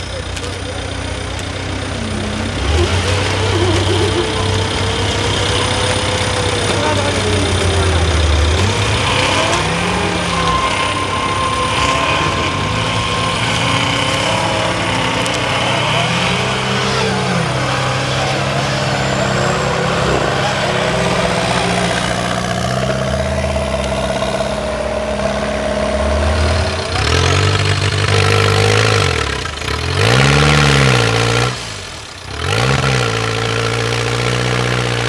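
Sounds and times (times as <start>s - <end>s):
background voices: 0.0s - 27.0s
race engines revving: 0.0s - 35.0s.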